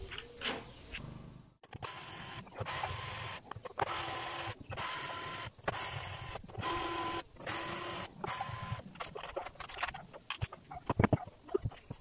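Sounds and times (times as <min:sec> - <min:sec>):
cordless drill running: 0:01.8 - 0:08.8.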